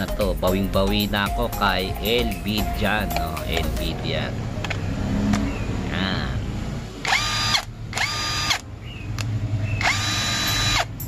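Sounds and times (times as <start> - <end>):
impact wrench motor whine: 7.0 - 8.6, 9.8 - 11.0.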